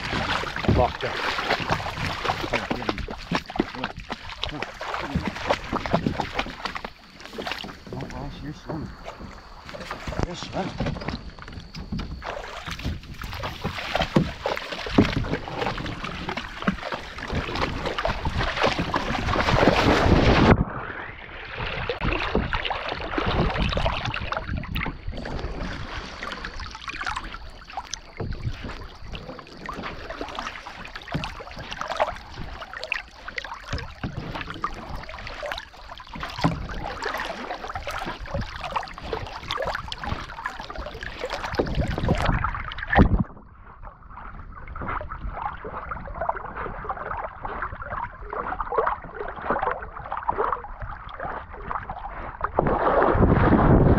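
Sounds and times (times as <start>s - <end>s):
water splashing and sloshing: 0.0s - 53.9s
wind buffeting microphone: 50.8s - 53.9s.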